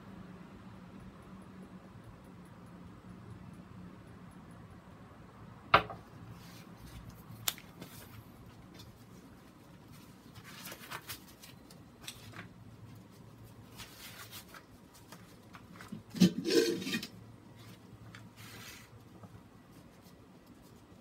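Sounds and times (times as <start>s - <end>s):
knock: 5.8s - 6.0s.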